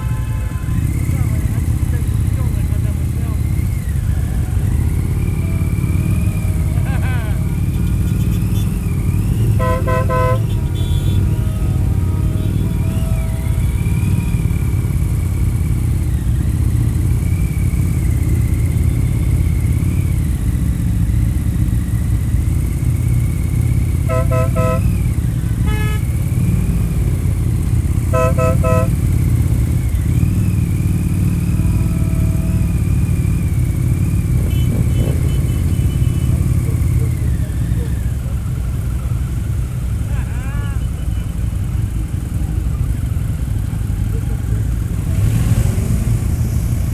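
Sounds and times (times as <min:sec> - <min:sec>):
motorcycle engine running: 0:00.0 - 0:46.9
motorcycle horn toots: 0:07.4 - 0:14.6, 0:23.9 - 0:26.5, 0:27.9 - 0:29.2, 0:31.4 - 0:33.0, 0:34.2 - 0:36.7.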